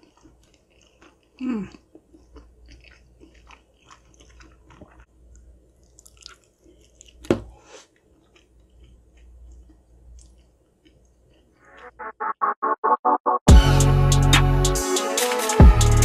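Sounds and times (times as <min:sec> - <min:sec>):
wet chewing and lip smacks: 0:00.0 - 0:07.3, 0:07.9 - 0:11.8.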